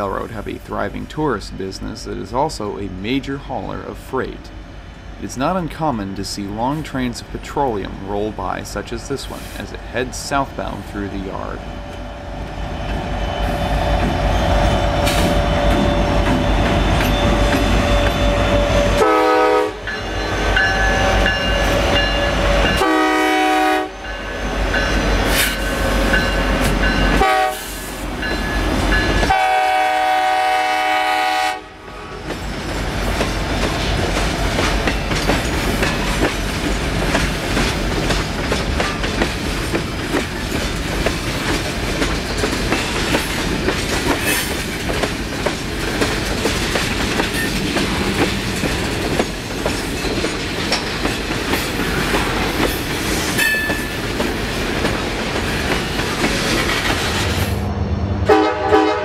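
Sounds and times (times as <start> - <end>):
freight train rolling past: 0.0 - 59.0
train wheels clicking over rail joints: 12.8 - 19.0, 32.2 - 57.6
locomotive horn blast: 18.9 - 19.9, 22.8 - 24.0, 27.2 - 27.8, 29.3 - 32.2, 58.2 - 59.0.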